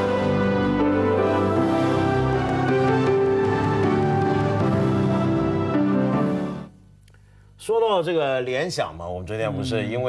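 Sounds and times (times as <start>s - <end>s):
instrumental theme music: 0.0s - 7.1s.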